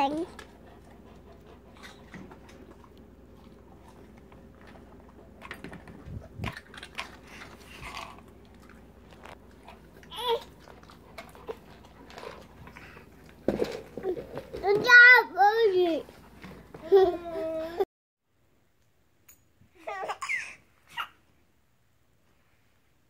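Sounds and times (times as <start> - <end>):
dog chewing mouth smacks: 0.3 - 13.4.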